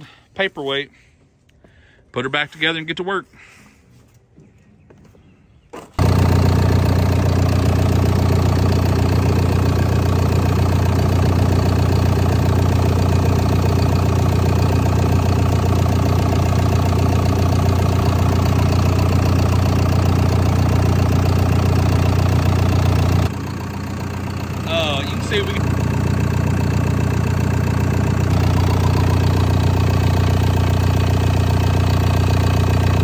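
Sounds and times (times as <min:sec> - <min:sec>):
diesel engine running: 0:06.0 - 0:33.0.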